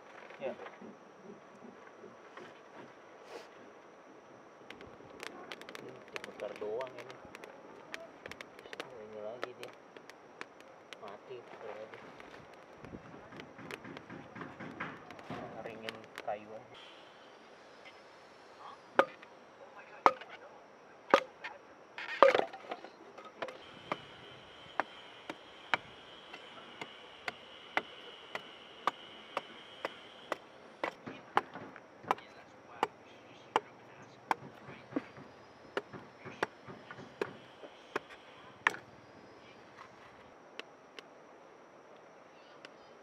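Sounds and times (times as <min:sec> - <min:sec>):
blade chopping wood: 0:19.0 - 0:19.2, 0:24.8 - 0:33.0, 0:34.3 - 0:38.9.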